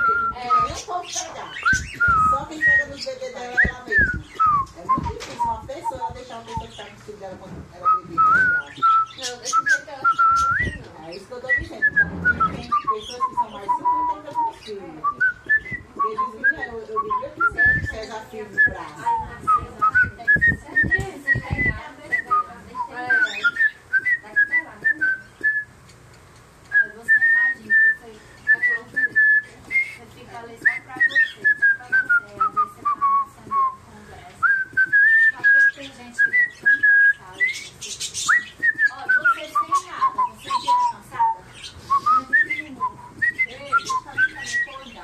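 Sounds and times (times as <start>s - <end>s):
cockatiel whistling: 0.0s - 6.7s, 7.9s - 10.9s, 11.5s - 25.7s, 34.4s - 45.0s.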